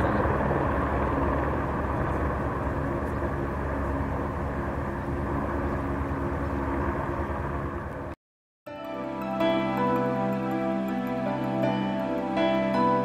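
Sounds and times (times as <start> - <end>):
helicopter hovering: 0.0 - 8.2.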